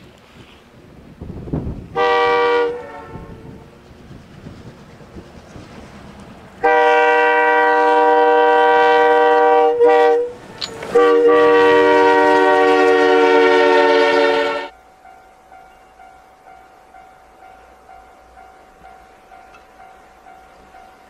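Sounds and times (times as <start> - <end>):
low rumble of running train: 0.0 - 21.0
locomotive air horn blasts: 1.9 - 3.7, 6.6 - 14.7.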